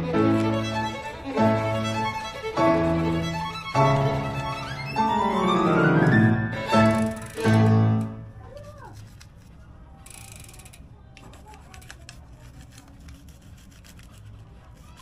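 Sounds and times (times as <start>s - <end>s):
sustained string music: 0.0s - 8.4s.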